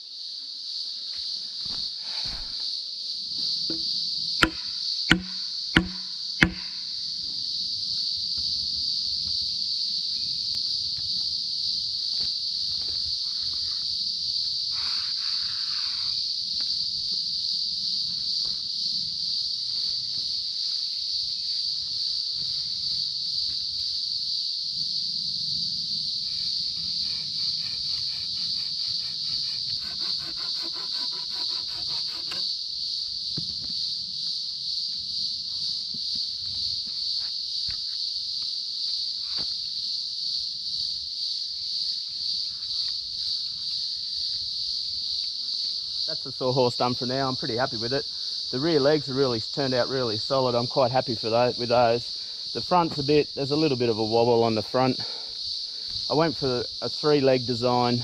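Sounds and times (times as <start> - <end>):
high-pitched insect chorus: 0.0 - 58.0
sharp knocks: 3.7 - 6.8.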